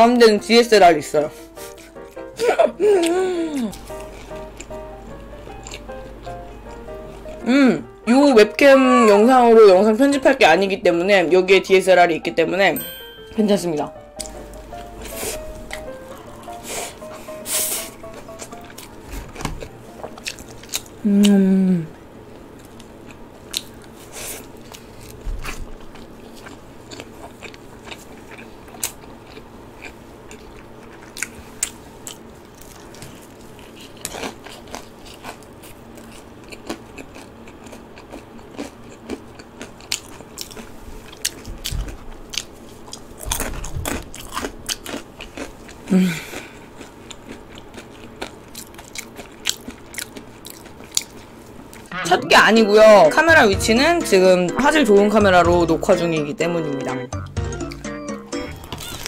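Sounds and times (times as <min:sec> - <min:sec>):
person humming: 0:01.4 - 0:04.1, 0:07.3 - 0:08.0, 0:21.0 - 0:22.0
crisp crunching and chewing: 0:03.5 - 0:07.4, 0:18.4 - 0:21.0, 0:22.6 - 0:51.8.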